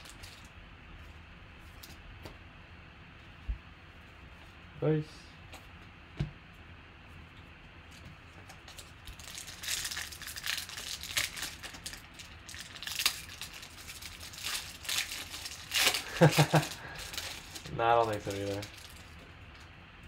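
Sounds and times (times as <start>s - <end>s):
foil wrapper crinkling: 7.9s - 19.7s.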